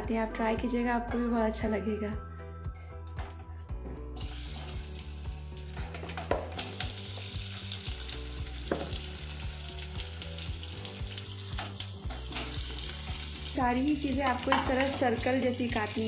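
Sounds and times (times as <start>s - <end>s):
potato slices sizzling in oil: 4.2s - 16.0s.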